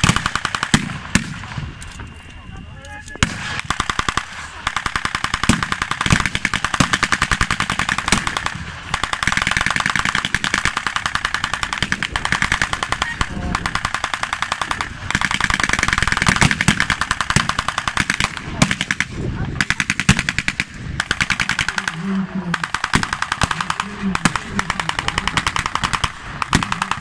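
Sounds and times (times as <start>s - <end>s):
machine-gun bursts: 0.0s - 1.5s, 3.2s - 27.0s
single gunshots: 0.0s - 1.6s, 11.7s - 27.0s.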